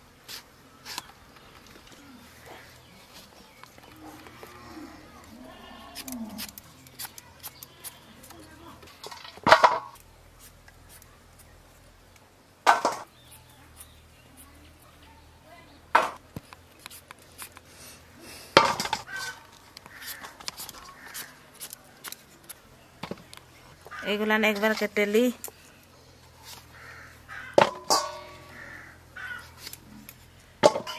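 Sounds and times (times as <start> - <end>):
faint scraping of peeling: 16.5 - 22.6
vegetables clattering into metal bowl: 27.6 - 28.4.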